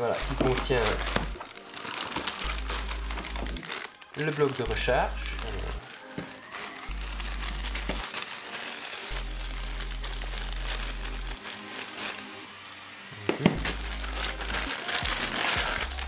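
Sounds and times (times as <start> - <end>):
background music with bass line: 0.0 - 1.5, 2.2 - 3.6, 13.3 - 16.0
plastic bags crinkling: 0.0 - 16.0.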